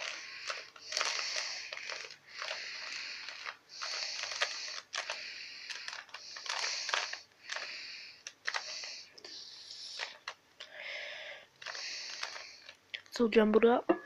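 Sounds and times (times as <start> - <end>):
puzzle cube clicking and rasping: 0.0 - 9.1, 9.9 - 10.4, 11.6 - 12.8.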